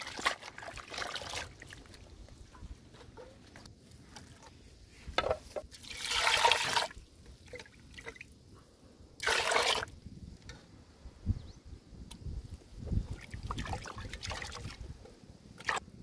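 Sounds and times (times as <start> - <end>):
water splashing in a metal pot: 0.0 - 2.0, 5.7 - 8.3, 9.2 - 9.9, 13.0 - 14.9.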